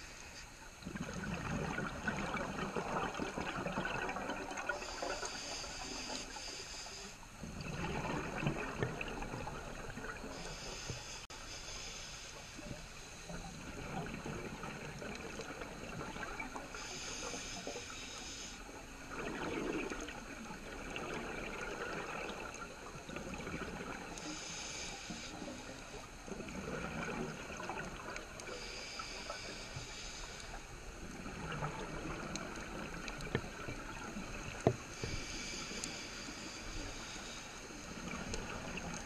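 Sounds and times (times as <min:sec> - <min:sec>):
regulator breathing hiss: 0:00.0 - 0:00.8, 0:04.7 - 0:07.4, 0:10.2 - 0:13.6, 0:16.4 - 0:19.1, 0:24.1 - 0:26.2, 0:28.2 - 0:31.0, 0:33.0 - 0:39.0.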